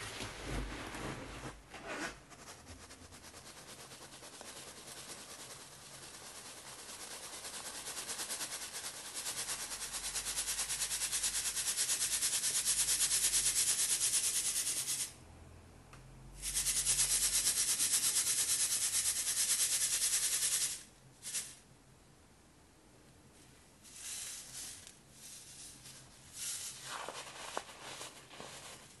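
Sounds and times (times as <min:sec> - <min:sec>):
powder sifting through mesh sieve: 0:00.0 - 0:15.1, 0:23.4 - 0:29.0.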